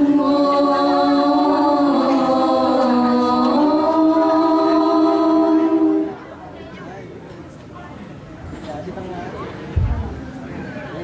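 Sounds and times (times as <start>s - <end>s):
women singing into microphones: 0.0s - 6.3s.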